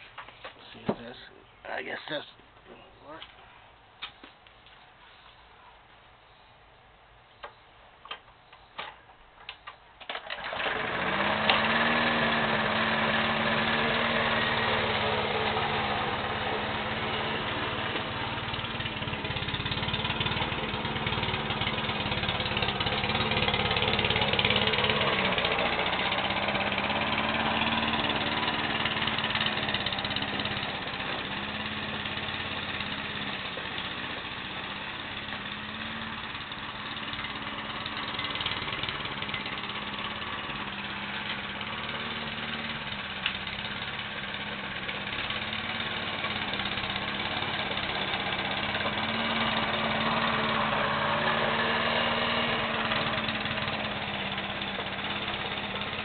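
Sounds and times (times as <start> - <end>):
lawn mower engine running: 8.0 - 56.0.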